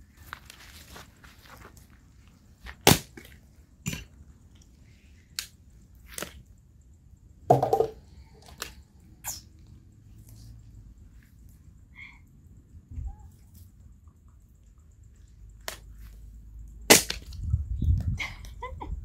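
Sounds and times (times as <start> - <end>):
hatchet chopping firewood: 2.8 - 3.3, 16.9 - 17.3.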